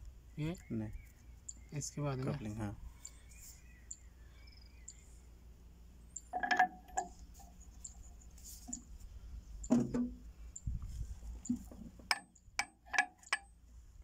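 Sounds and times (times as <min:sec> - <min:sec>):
metal parts clinking: 0:06.4 - 0:07.1.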